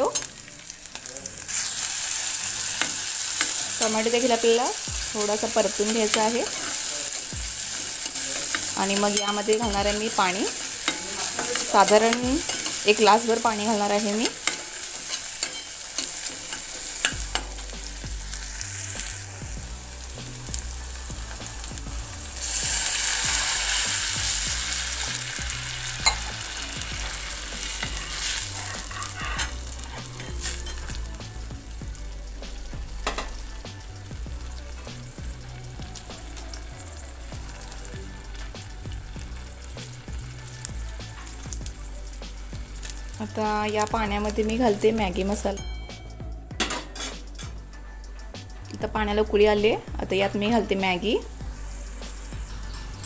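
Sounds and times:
water hissing in hot pan: 0:00.0 - 0:45.6, 0:48.4 - 0:53.0
watery mix simmering: 0:00.0 - 0:45.6
vegetables sizzling in oil: 0:00.0 - 0:53.0
metal ladle stirring and scraping: 0:04.9 - 0:17.7.

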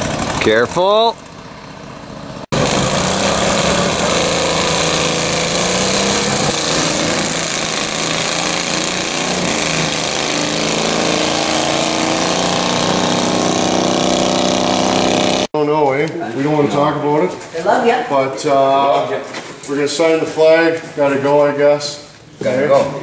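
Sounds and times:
small engines at full throttle: 0:00.0 - 0:15.5.

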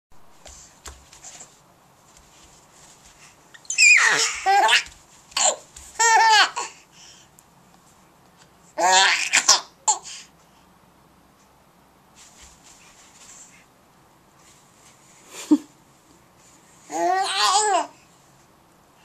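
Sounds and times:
baby laughing: 0:03.8 - 0:06.7.

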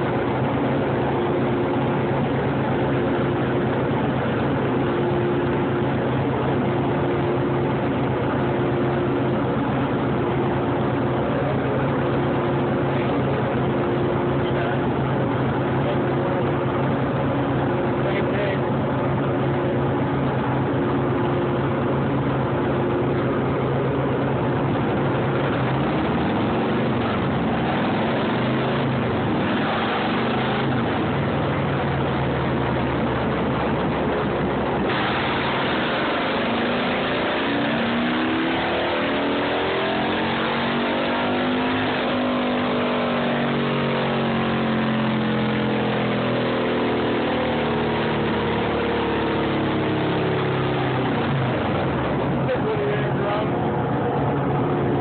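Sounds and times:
motorcycle engine on dyno: 0:00.0 - 0:55.0.

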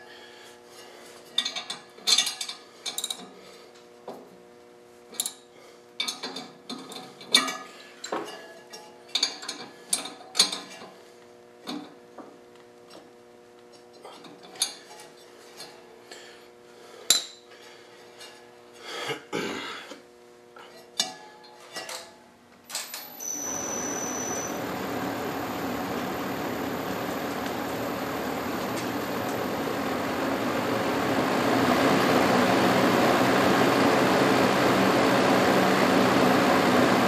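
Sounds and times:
faint steady hum: 0:22.8 - 0:36.6.

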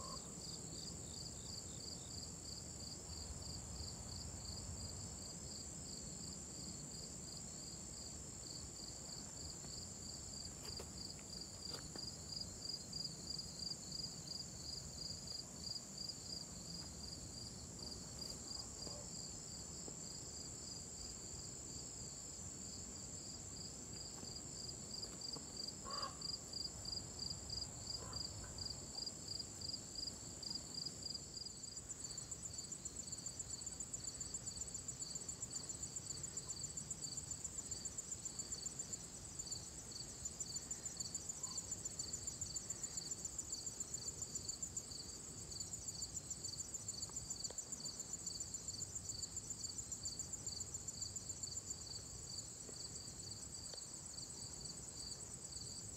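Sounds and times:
insect pulsing call: 0:00.0 - 0:00.3, 0:25.8 - 0:26.4.

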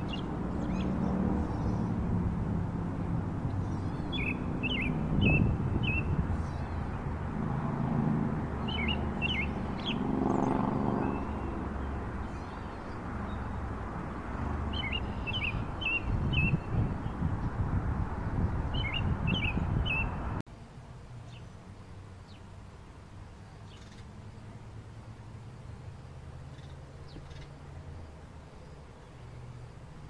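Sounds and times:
outdoor ambience: 0:00.0 - 0:30.0
bird singing whistled notes: 0:03.7 - 0:06.8, 0:08.6 - 0:10.0, 0:14.7 - 0:17.2, 0:18.7 - 0:20.2.

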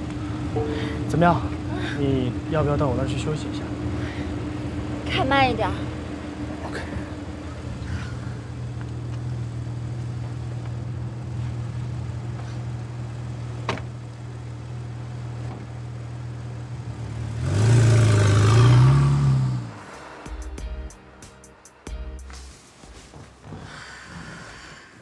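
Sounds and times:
sports car engine: 0:00.0 - 0:20.6
car door shutting: 0:13.6 - 0:13.9.

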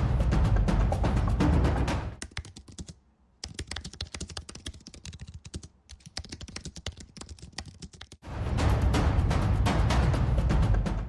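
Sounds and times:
rapid typing on keyboard: 0:02.2 - 0:08.2.

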